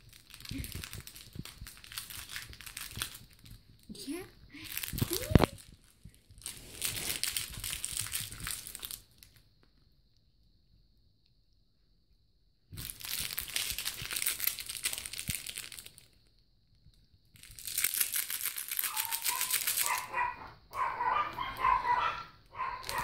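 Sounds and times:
plush toy crinkling: 0:00.0 - 0:09.5, 0:12.8 - 0:16.2, 0:17.3 - 0:20.3, 0:22.6 - 0:23.0.

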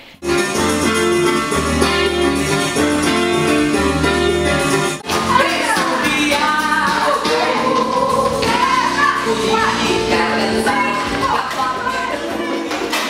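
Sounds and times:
instrumental music with bass line: 0:00.2 - 0:13.0
person singing: 0:03.8 - 0:12.9.

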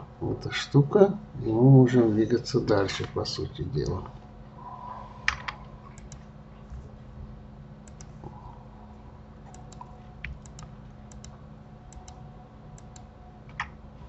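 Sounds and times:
low steady hum: 0:00.0 - 0:14.0
keyboard and mouse clicks: 0:05.2 - 0:06.2, 0:07.8 - 0:08.2, 0:09.4 - 0:12.2, 0:12.8 - 0:13.8.

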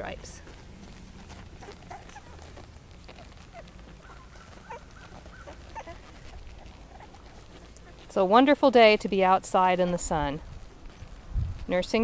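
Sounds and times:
puppies squeaking and whimpering: 0:01.0 - 0:08.1.

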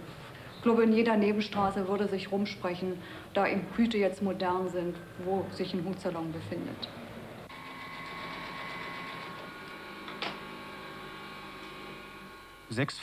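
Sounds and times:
sewing machine humming: 0:06.5 - 0:12.8.

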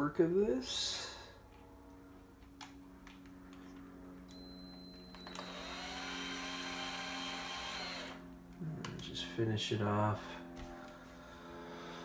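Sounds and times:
power drill motor whine: 0:04.2 - 0:08.4.

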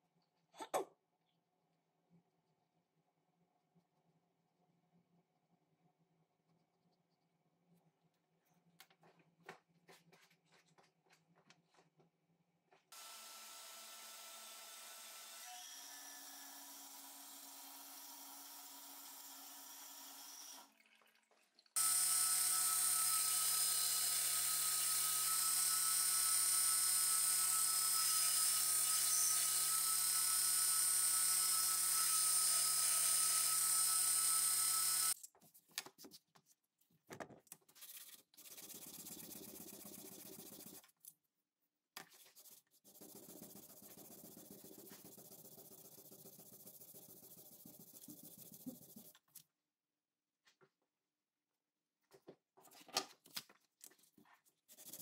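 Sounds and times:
quiet shop sounds: 0:00.0 - 0:13.9
belt grinder whining: 0:21.8 - 0:35.2.

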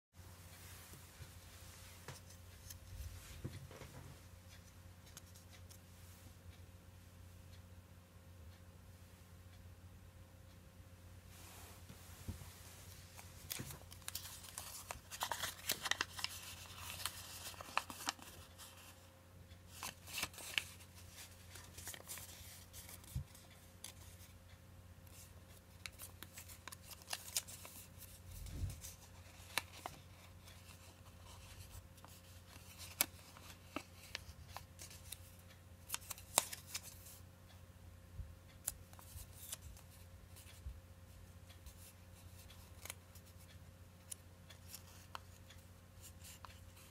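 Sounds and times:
faint steady hum: 0:00.2 - 0:46.9
paper rustling and crackling: 0:13.1 - 0:19.0, 0:19.7 - 0:24.3, 0:25.1 - 0:35.2.

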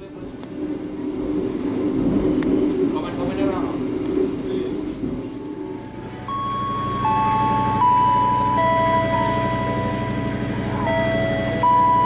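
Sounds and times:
low rumble: 0:00.0 - 0:12.0
electronic melody of held tones: 0:05.8 - 0:12.0.

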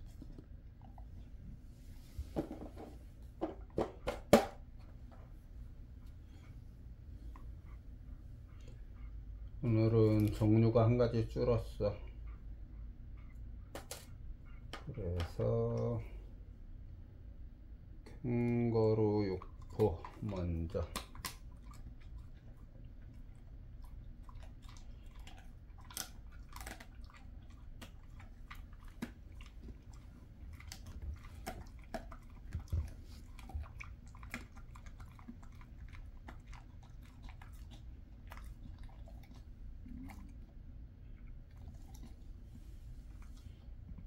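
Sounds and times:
dog chewing crunchy treat: 0:18.5 - 0:40.6.

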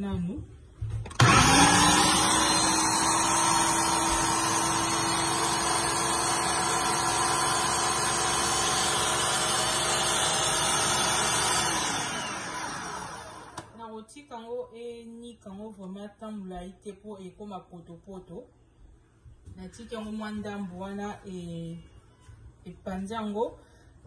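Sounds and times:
blender motor whining: 0:01.1 - 0:13.7.

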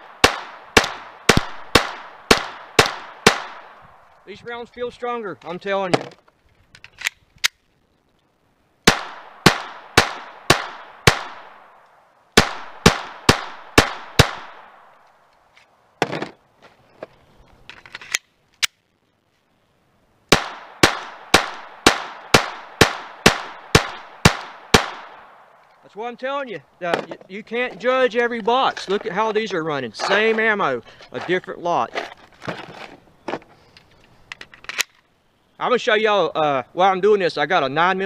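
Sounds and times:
pistol shots with ringing tail: 0:00.0 - 0:03.8, 0:08.9 - 0:11.7, 0:12.4 - 0:14.9, 0:20.3 - 0:25.4.

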